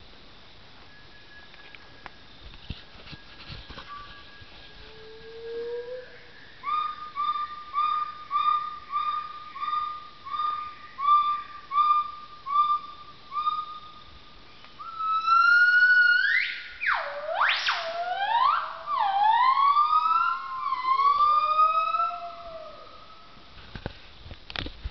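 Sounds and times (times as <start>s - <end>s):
lower gibbon call: 3.8s - 14.1s, 14.8s - 23.4s.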